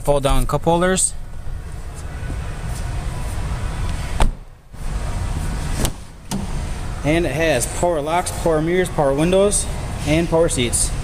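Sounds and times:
car door shutting: 4.2s - 4.5s, 5.7s - 6.6s.

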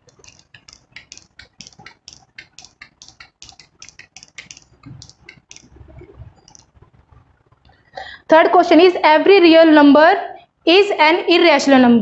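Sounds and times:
duster rubbing on whiteboard: 0.0s - 6.4s.

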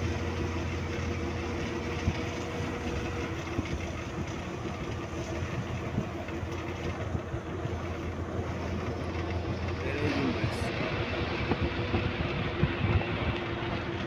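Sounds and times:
continuous low hum: 0.0s - 14.0s
vehicle running noise from inside: 0.0s - 14.0s.

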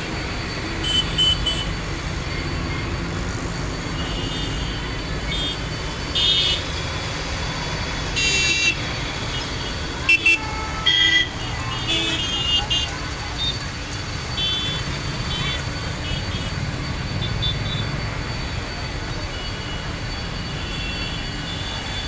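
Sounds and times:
low traffic rumble: 0.0s - 22.0s
vehicle horns honking: 0.8s - 1.8s, 4.0s - 6.7s, 8.2s - 13.6s, 14.4s - 16.5s.

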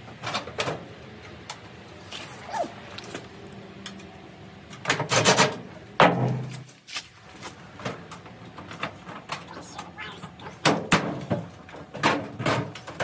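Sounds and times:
metal panels knocking and rattling: 10.5s - 13.0s.

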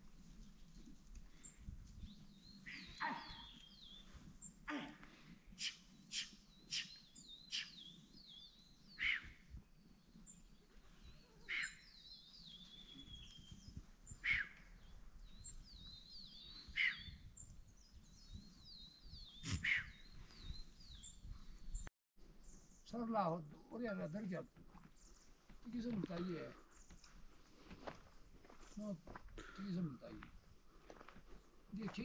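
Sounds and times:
faint high twittering song: 0.7s - 4.9s, 5.5s - 27.2s.

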